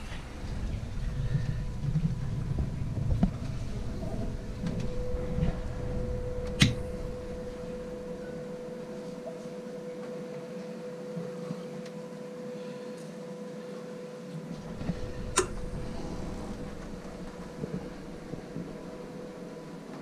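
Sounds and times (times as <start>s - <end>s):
deep rumble: 0.0s - 8.9s, 14.6s - 20.0s
machinery hum: 0.0s - 20.0s
mid-pitched whine: 0.0s - 20.0s.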